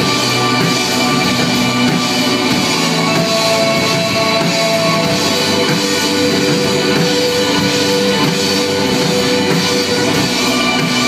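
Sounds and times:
bass guitar: 0:00.0 - 0:11.0
drum kit: 0:00.0 - 0:11.0
electric guitars: 0:00.0 - 0:11.0.

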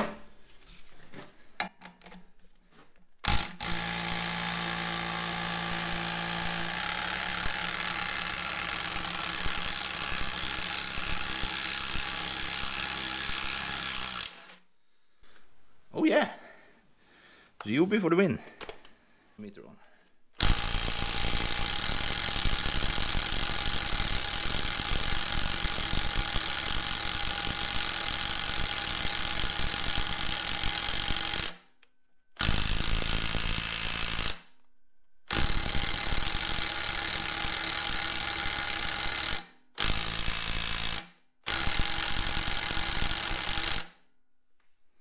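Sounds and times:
impact wrench hammering on bolts: 0:03.2 - 0:14.6, 0:20.4 - 0:31.5, 0:35.3 - 0:43.9.

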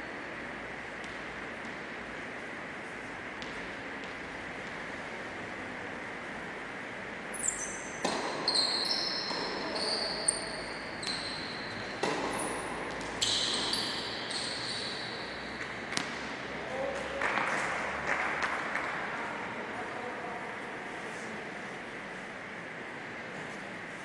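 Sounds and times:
tennis ball bounces: 0:03.4 - 0:04.8, 0:08.0 - 0:08.5, 0:11.8 - 0:13.8, 0:15.6 - 0:16.4
shoe squeaks on court: 0:07.3 - 0:15.4
tennis racket strikes: 0:11.9 - 0:13.7.

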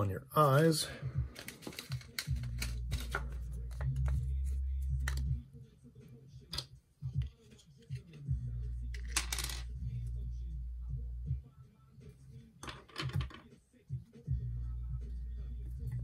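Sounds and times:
hands handling small materials: 0:01.3 - 0:05.3
low steady hum: 0:08.3 - 0:11.4.

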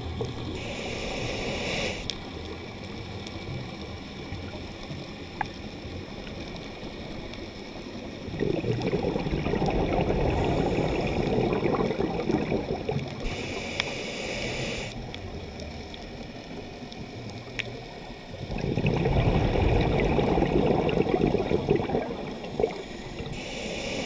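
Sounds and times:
regulator inhale hiss: 0:00.4 - 0:02.2, 0:10.3 - 0:11.5, 0:13.2 - 0:15.0, 0:22.5 - 0:24.0
exhaled bubbles gurgling: 0:02.6 - 0:13.9, 0:14.5 - 0:24.0.

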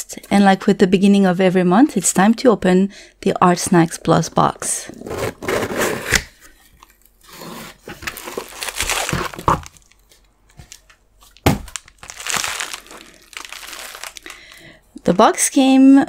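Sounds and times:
cardboard and bubble wrap crinkling: 0:04.8 - 0:15.2.

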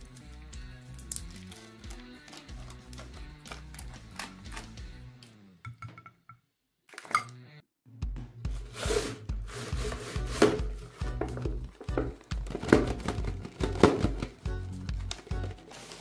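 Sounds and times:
background music with bass line: 0:00.0 - 0:05.8, 0:07.3 - 0:15.7
plastic containers knocking and rubbing: 0:08.6 - 0:14.5.

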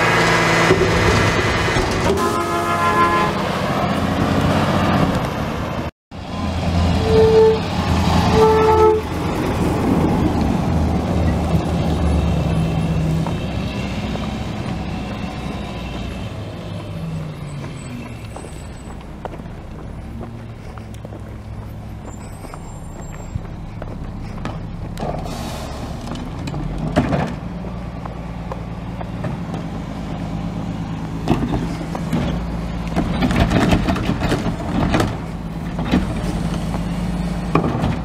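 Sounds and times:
truck horn toots: 0:02.1 - 0:03.7, 0:06.9 - 0:09.2
diesel truck engine running: 0:03.3 - 0:38.0.

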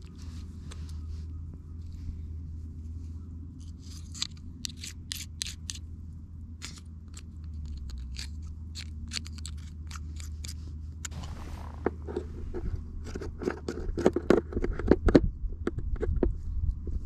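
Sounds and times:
knife scraping mussel shell: 0:03.6 - 0:05.8, 0:06.6 - 0:11.2
rustle: 0:06.6 - 0:13.6.

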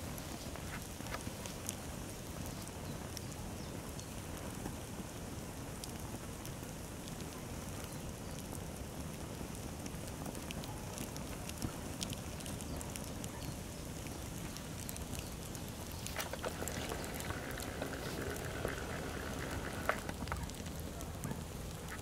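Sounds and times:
fire crackling: 0:00.0 - 0:22.0
sharp pops from fire: 0:00.0 - 0:22.0.

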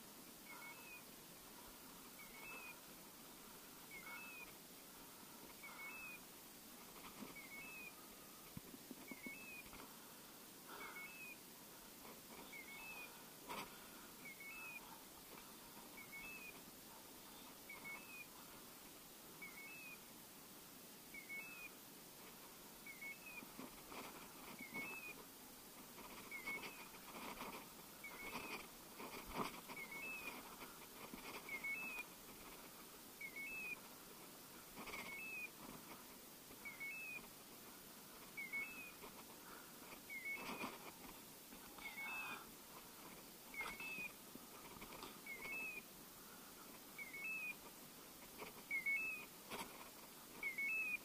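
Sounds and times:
footsteps through dry brush: 0:23.2 - 0:46.0.

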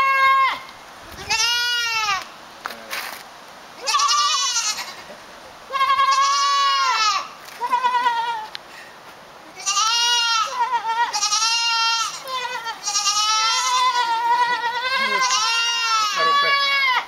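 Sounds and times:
goat bleating: 0:00.0 - 0:02.3, 0:03.8 - 0:08.6, 0:09.4 - 0:17.0.

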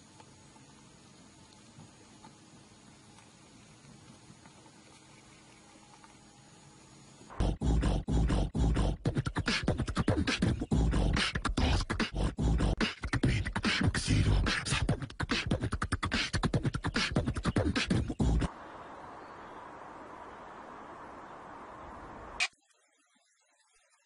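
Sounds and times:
faint hiss: 0:00.0 - 0:07.4, 0:18.5 - 0:24.0
beatboxing: 0:07.3 - 0:18.5.

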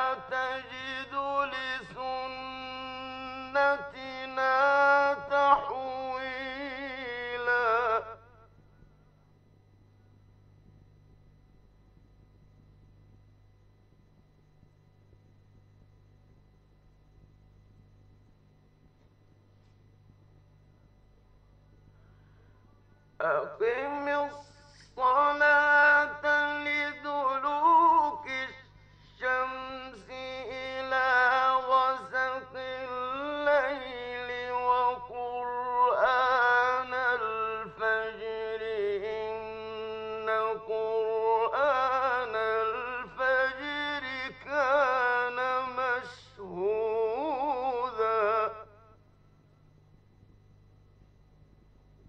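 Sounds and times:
man chanting melodically: 0:00.0 - 0:08.6, 0:23.0 - 0:49.0
faint low hum: 0:00.0 - 0:52.0.

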